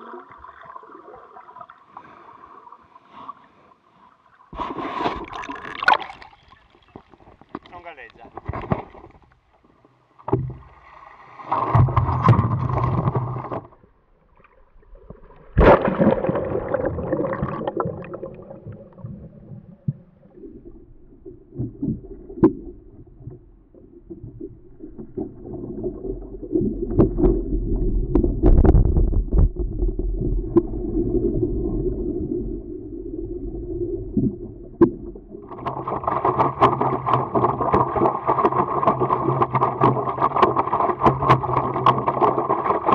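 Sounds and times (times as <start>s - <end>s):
water lapping against paddleboard: 34.8s - 42.9s.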